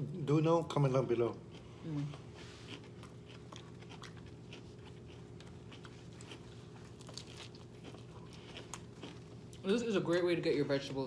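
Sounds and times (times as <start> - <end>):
crunching and chewing lettuce: 0.6 - 11.0.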